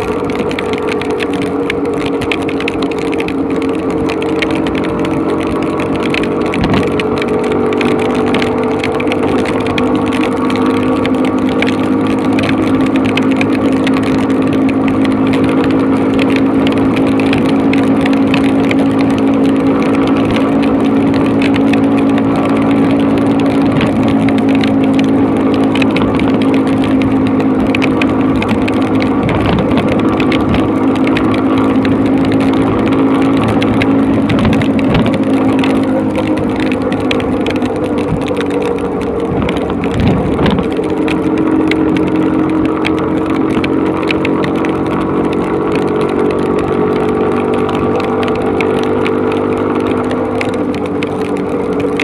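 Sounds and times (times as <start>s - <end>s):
motorcycle engine running: 0.0s - 52.0s
rain on microphone: 0.0s - 52.0s
wind on microphone: 6.0s - 7.3s, 20.4s - 43.6s.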